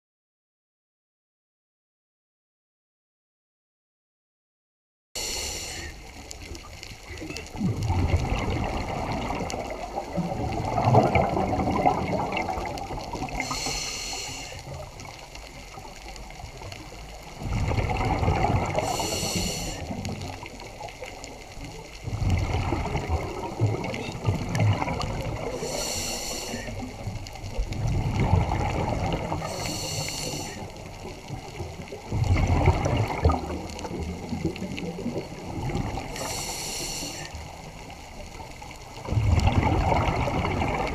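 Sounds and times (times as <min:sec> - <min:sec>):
regulator high hiss: 0:05.2 - 0:06.1, 0:13.4 - 0:14.6, 0:18.8 - 0:19.8, 0:25.6 - 0:26.7, 0:29.5 - 0:30.6, 0:36.2 - 0:37.3
bubbling gush of bubbles: 0:05.8 - 0:40.9.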